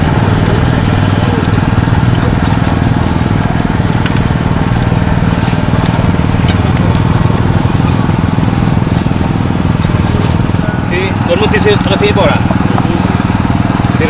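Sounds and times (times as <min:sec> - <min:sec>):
small engine running: 0:00.0 - 0:14.0
light clicks and clatter: 0:01.4 - 0:04.3, 0:05.3 - 0:10.6.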